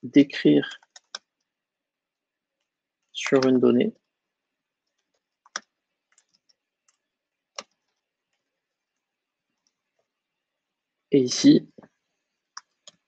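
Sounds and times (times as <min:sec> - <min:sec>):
computer keyboard keystrokes: 0:00.8 - 0:01.3, 0:04.9 - 0:07.0.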